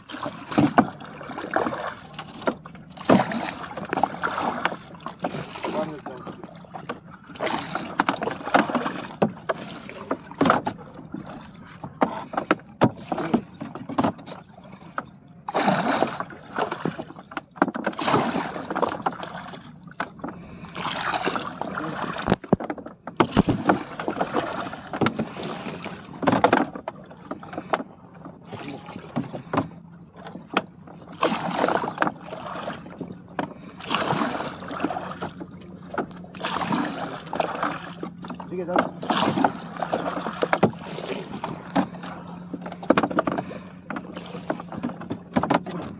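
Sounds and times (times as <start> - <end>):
oar knocking against boat: 0.0 - 45.9
oar splashing water: 0.0 - 45.9
steady low hum: 14.4 - 45.9.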